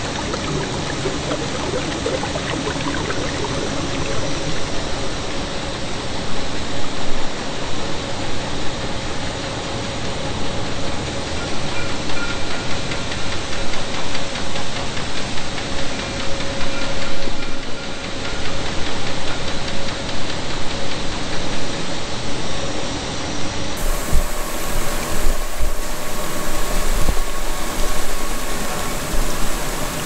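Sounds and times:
mid-pitched hum: 0.0s - 5.4s, 23.8s - 30.0s
machinery noise: 0.0s - 5.6s, 23.8s - 30.0s.

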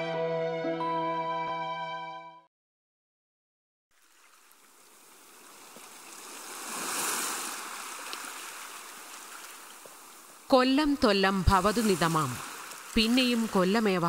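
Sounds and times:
surf washing onto rocky shore: 5.2s - 10.5s, 11.6s - 13.6s.

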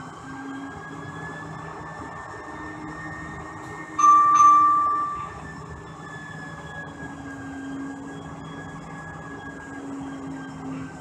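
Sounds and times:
loud high ringing bell: 4.0s - 5.8s
tram running noise: 4.0s - 6.0s.

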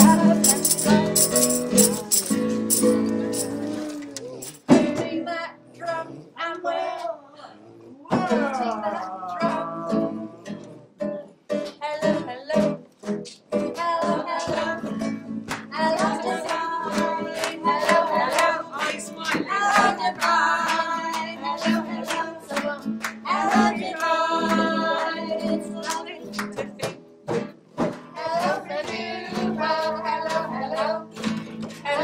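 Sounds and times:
strummed guitar: 0.0s - 5.2s, 8.1s - 32.0s
person singing: 0.0s - 10.8s, 11.8s - 27.5s.

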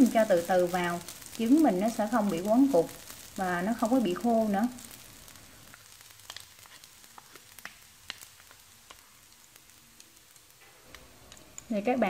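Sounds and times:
faint sizzle: 0.0s - 12.0s
chopsticks scraping in frying pan: 4.8s - 9.0s.

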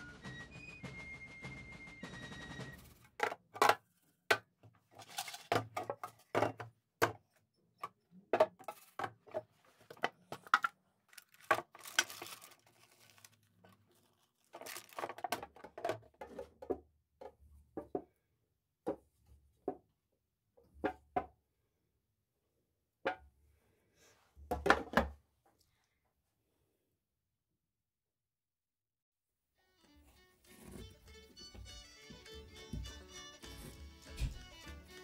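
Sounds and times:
tin lids and cans clicking: 3.2s - 7.2s
foil crinkling: 11.1s - 15.3s.

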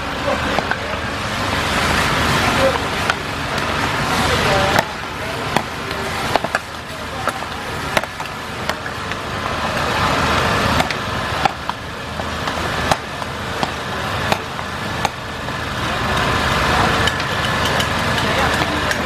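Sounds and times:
steady rushing noise: 0.0s - 19.0s
metal utensils clanking against wok: 16.0s - 19.0s.

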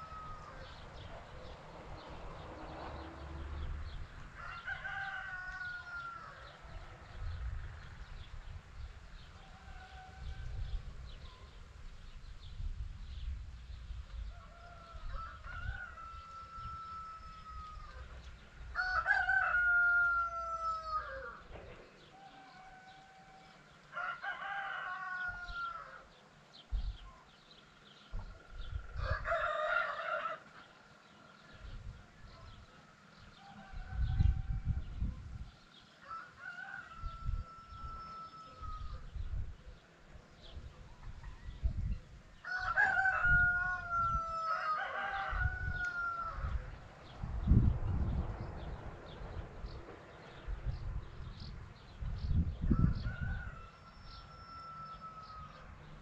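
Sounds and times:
roosters crowing: 0.0s - 7.1s, 9.1s - 10.9s, 14.2s - 26.2s, 28.3s - 31.7s, 32.6s - 35.0s, 35.8s - 39.2s, 42.4s - 46.9s, 51.3s - 56.0s.

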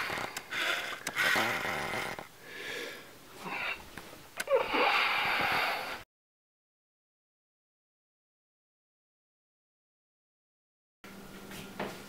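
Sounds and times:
person breathing: 0.0s - 3.8s, 4.5s - 6.0s.

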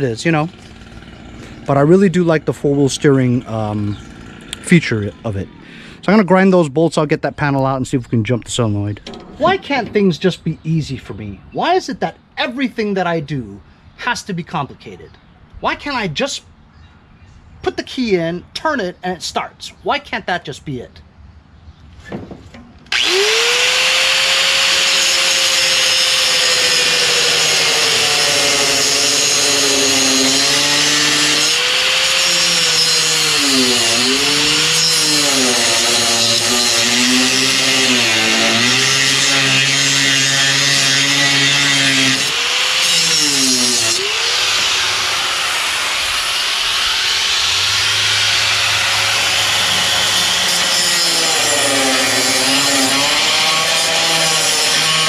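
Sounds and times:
angle grinder grinding metal: 22.9s - 55.0s.

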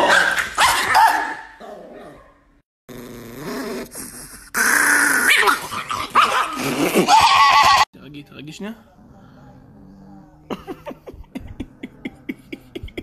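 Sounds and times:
small dog growling: 2.9s - 7.1s.

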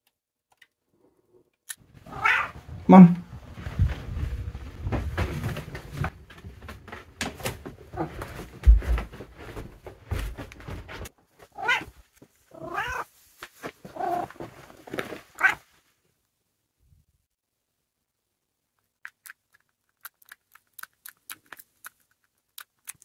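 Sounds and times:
rustling: 1.9s - 16.1s
cat meowing: 2.1s - 3.2s, 11.6s - 11.9s, 12.6s - 13.0s.

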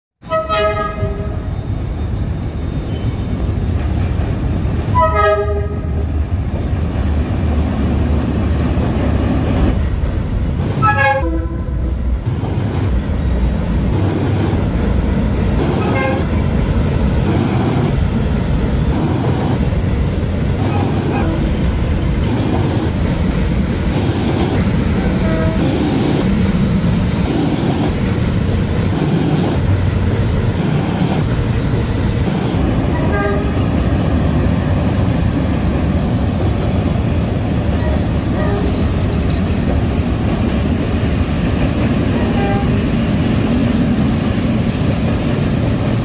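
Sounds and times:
train horn blasts: 0.2s - 1.4s, 4.9s - 6.0s, 10.8s - 11.9s, 15.7s - 16.4s, 25.0s - 25.8s, 32.9s - 33.7s, 37.8s - 38.8s, 42.2s - 42.8s
train horn toots: 0.2s - 1.5s, 4.9s - 6.0s, 10.7s - 11.9s, 15.7s - 16.4s, 25.0s - 25.8s, 32.9s - 33.7s, 37.8s - 38.9s, 42.2s - 42.8s
train running rumble: 0.2s - 46.0s.

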